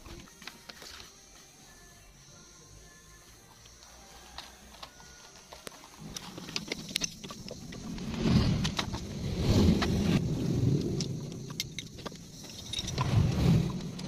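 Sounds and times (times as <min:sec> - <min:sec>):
low rumble: 0:07.4 - 0:14.0.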